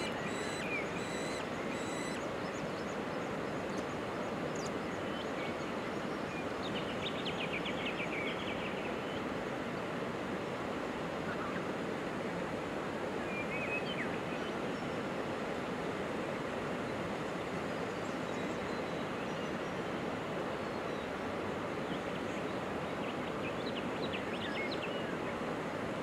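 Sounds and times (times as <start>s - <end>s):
faint high bird chirps: 0.0s - 8.6s.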